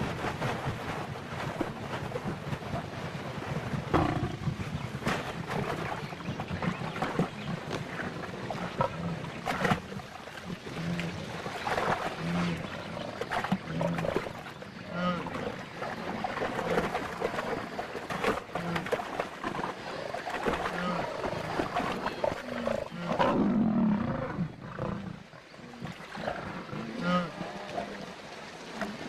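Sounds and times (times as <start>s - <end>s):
knocks and splashes: 0.0s - 23.4s
lioness growling: 3.9s - 4.6s, 20.7s - 28.2s.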